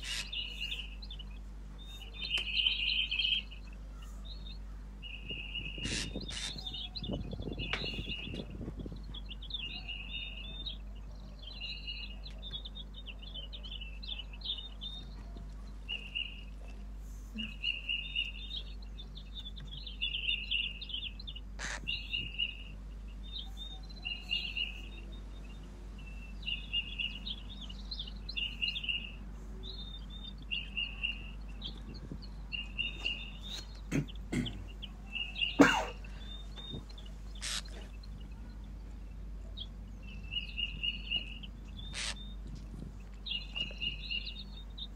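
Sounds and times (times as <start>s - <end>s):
fledgling bird begging calls: 0.0s - 1.0s, 5.6s - 8.1s, 20.4s - 22.6s, 33.2s - 38.1s, 41.7s - 42.4s.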